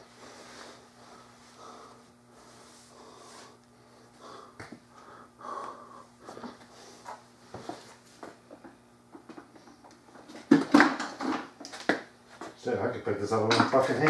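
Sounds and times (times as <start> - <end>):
man breathing heavily: 0.0 - 8.2
steady low hum: 0.0 - 14.0.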